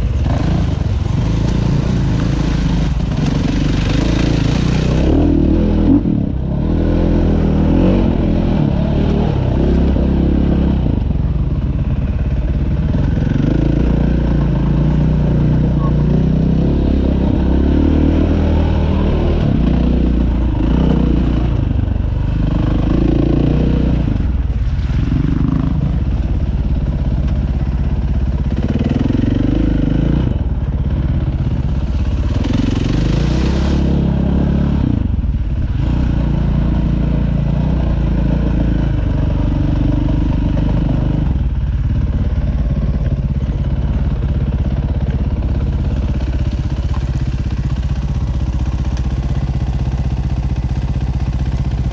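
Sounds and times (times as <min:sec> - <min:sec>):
dirt bike engine revving: 0:00.0 - 0:11.2, 0:12.2 - 0:27.0, 0:28.4 - 0:30.6, 0:31.5 - 0:41.5.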